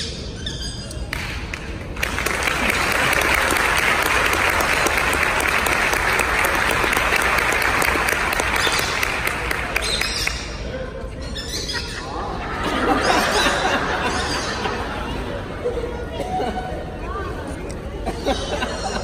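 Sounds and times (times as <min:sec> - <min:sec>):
audience applauding: 0:01.5 - 0:10.6.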